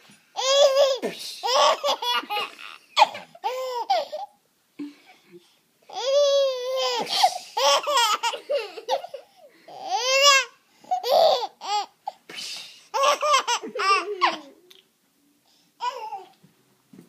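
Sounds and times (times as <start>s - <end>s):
baby laughing: 0.4s - 4.3s, 5.9s - 12.0s, 12.9s - 14.6s.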